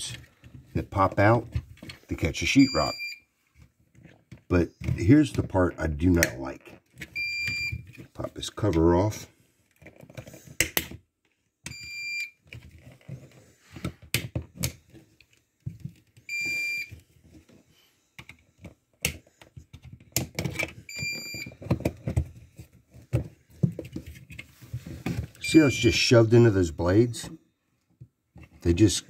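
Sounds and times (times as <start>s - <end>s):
alarm beeping: 2.6s - 3.2s.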